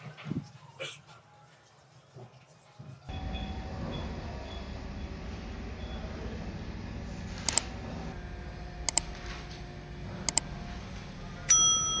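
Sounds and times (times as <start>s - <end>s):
bell-like chime: 11.5s - 12.0s.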